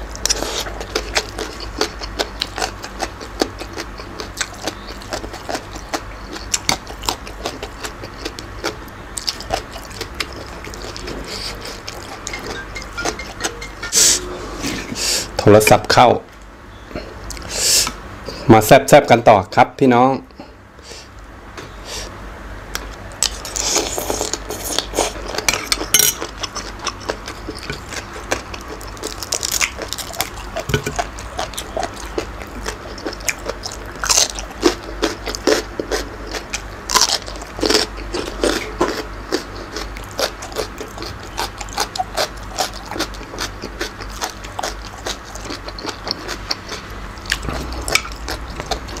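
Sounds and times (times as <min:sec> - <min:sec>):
crunchy chewing: 0:00.0 - 0:12.4, 0:22.7 - 0:49.0.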